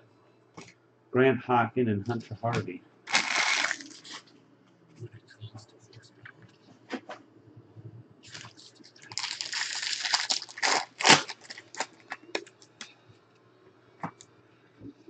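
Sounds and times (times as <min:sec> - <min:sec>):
plastic wrapper crinkling: 0:03.1 - 0:04.2, 0:08.3 - 0:12.7.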